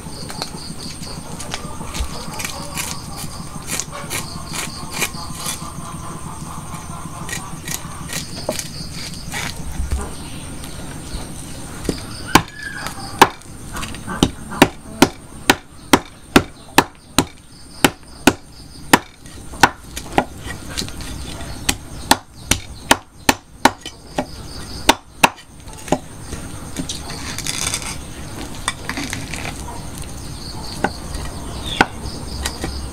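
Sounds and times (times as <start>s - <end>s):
cleaver scraping fish scales: 0.8s - 5.7s, 6.8s - 9.9s, 20.3s - 21.7s, 25.6s - 31.6s.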